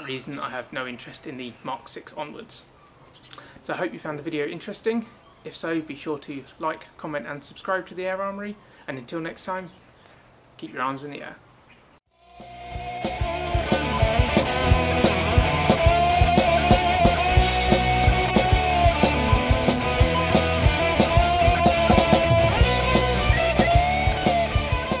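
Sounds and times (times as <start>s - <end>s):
drum kit beat: 12.2s - 25.0s
rock instrumental: 12.2s - 25.0s
guitar: 12.3s - 25.0s.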